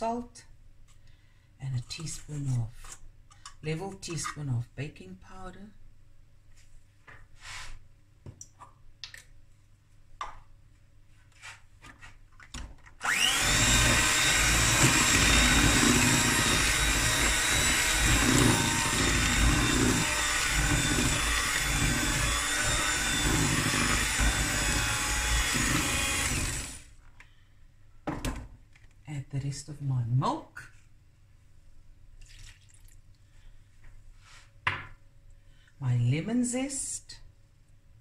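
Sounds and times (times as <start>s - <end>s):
electric hand mixer running: 13.0s - 26.9s.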